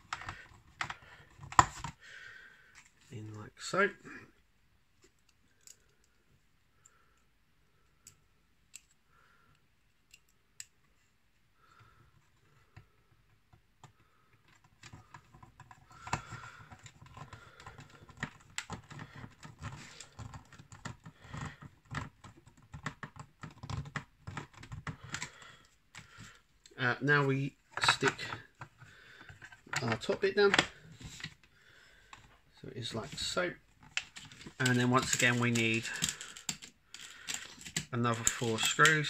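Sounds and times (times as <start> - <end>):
plastic rubbing against plastic: 27.2 - 39.0
plastic parts clicking: 33.0 - 39.0.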